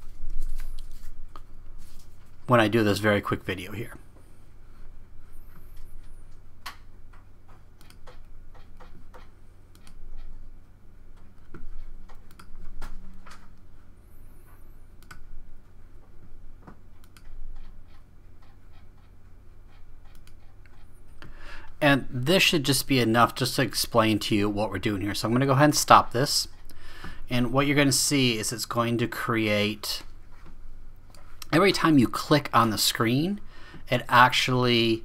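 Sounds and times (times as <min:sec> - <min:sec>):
steady low hum: 0:00.0 - 0:35.0
computer mouse clicks: 0:06.6 - 0:10.3, 0:11.4 - 0:12.6, 0:15.0 - 0:15.3, 0:17.0 - 0:19.1, 0:19.7 - 0:20.8.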